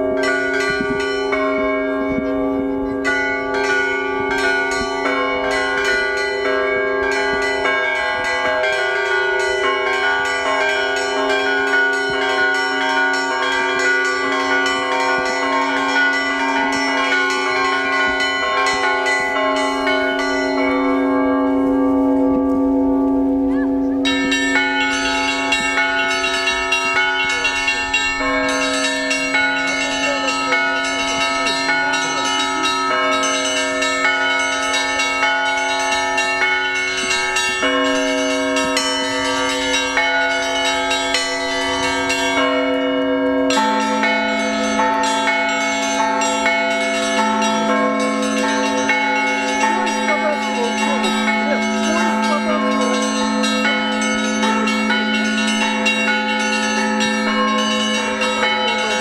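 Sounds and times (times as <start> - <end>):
large bells ringing: 0.0 - 59.0
small high bells ringing: 0.0 - 59.0.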